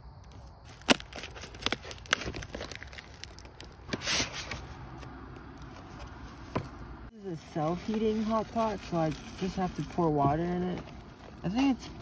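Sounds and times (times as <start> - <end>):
plastic packaging crinkling: 0.7 - 4.6, 7.5 - 11.4.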